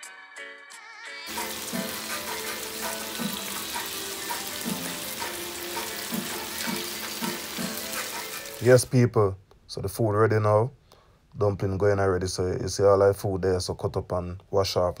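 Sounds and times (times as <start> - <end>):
guitar music: 1.3 - 8.6
chicken sizzling in a pan: 1.3 - 8.8.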